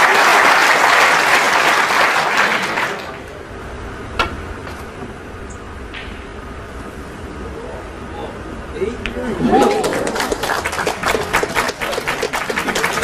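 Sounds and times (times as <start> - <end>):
audience applauding: 0.0 - 3.2, 9.5 - 13.0.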